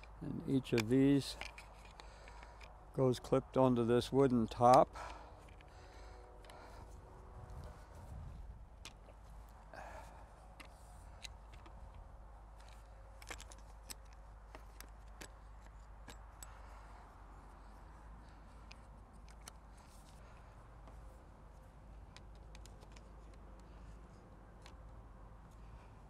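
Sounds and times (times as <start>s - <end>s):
wooden tripod legs clicking: 0.0s - 2.8s, 10.5s - 26.0s.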